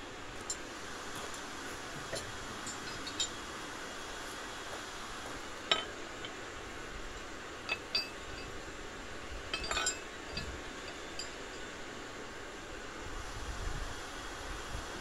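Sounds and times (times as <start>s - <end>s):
metal pegs clinking on anvil: 2.1s - 3.4s, 5.6s - 6.4s, 7.1s - 8.7s, 9.4s - 11.8s.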